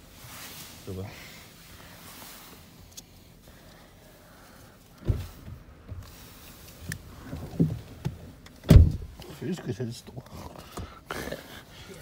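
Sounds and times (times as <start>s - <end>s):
dull thump: 5.0s - 6.1s, 7.3s - 9.2s.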